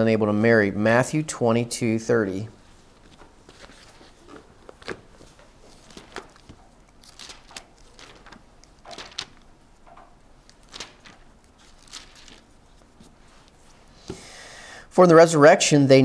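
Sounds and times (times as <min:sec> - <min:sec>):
pages turning: 0:02.6 - 0:14.2.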